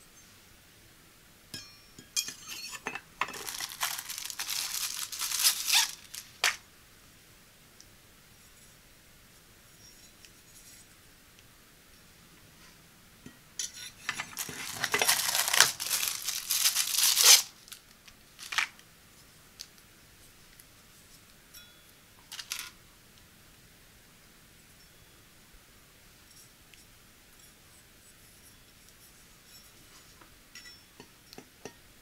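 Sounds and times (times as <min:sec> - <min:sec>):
plastic packaging crinkling and tearing: 0:03.2 - 0:06.6, 0:14.1 - 0:18.8.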